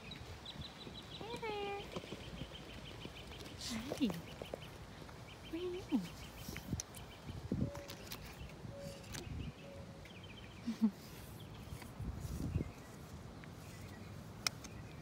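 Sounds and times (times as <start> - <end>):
faint bird chirps: 0.0 - 15.0
low puffs and rustles: 10.8 - 14.8.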